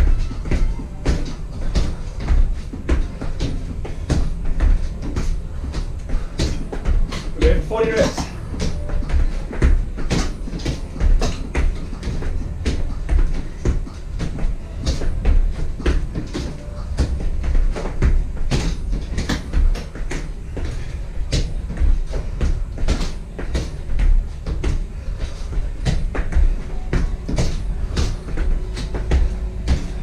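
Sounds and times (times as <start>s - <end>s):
feet stepping onto a bench: 0.0s - 30.0s.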